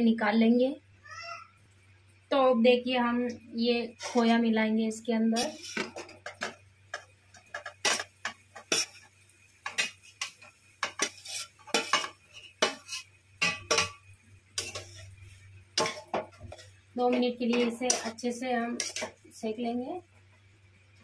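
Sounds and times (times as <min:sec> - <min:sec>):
metal spoon scraping and clinking: 0:05.4 - 0:14.0, 0:14.6 - 0:19.2.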